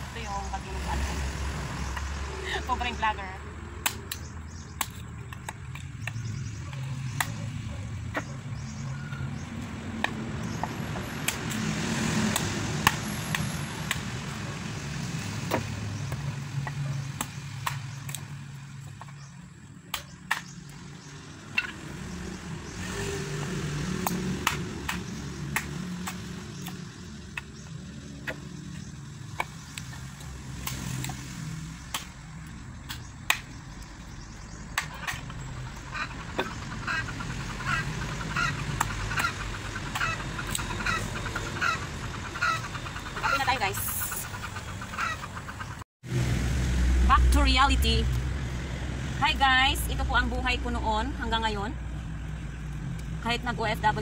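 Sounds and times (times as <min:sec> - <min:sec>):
machete chopping wood: 0:03.8 - 0:08.3, 0:09.9 - 0:14.2, 0:15.3 - 0:18.2, 0:19.9 - 0:20.6, 0:24.0 - 0:27.6, 0:29.2 - 0:32.2, 0:32.8 - 0:33.6, 0:34.7 - 0:35.4.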